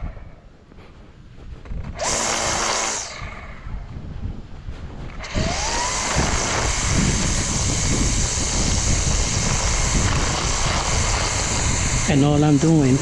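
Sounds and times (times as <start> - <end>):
string trimmer running: 1.9 - 3.8, 5.1 - 13.0.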